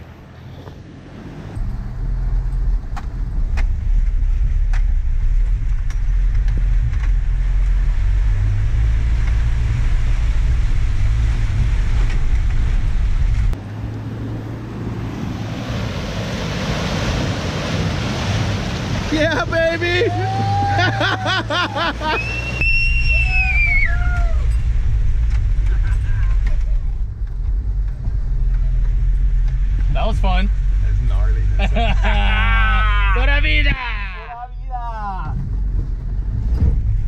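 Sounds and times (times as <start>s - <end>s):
splashing mud and water: 2.7s - 19.2s.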